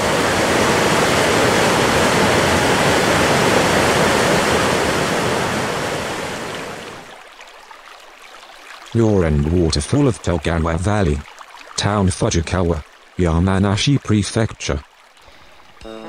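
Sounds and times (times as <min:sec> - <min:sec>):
waterfall rushing into pool: 0:00.0 - 0:07.2.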